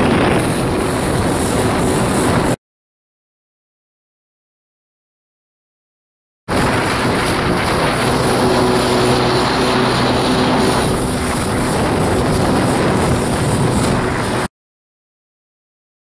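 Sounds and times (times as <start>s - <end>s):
jet ski engine running: 0.0s - 2.6s, 6.5s - 14.5s
rush of wind and water: 0.0s - 2.6s, 6.5s - 14.5s.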